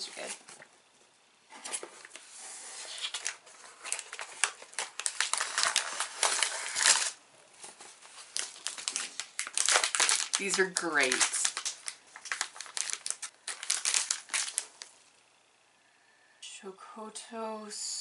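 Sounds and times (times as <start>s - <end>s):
plastic wrappers crinkling: 2.9s - 14.9s.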